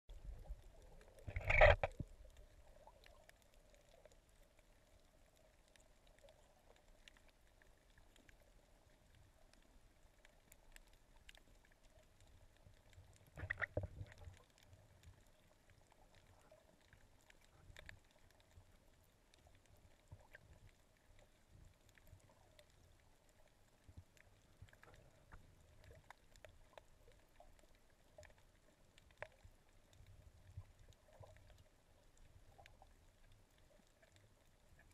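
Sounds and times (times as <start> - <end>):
faint steady hum: 0.1 - 34.9
muffled rush of water: 0.1 - 34.9
small clicks: 0.4 - 34.9.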